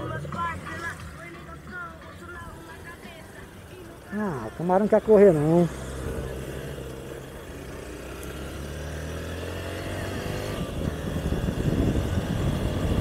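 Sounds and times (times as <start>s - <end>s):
motorcycle engine accelerating: 2.6s - 13.0s
wind noise on microphone: 10.0s - 13.0s.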